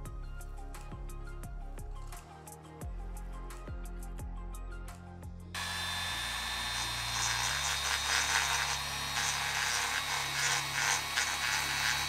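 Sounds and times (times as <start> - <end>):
rotary tool grinding metal: 5.6 - 12.0.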